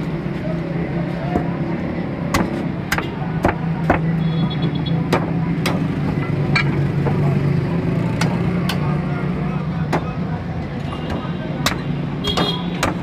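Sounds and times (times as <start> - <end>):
road traffic hum: 0.0 - 13.0
cleaver chopping on wooden block: 2.3 - 4.1, 9.9 - 10.2, 11.0 - 13.0.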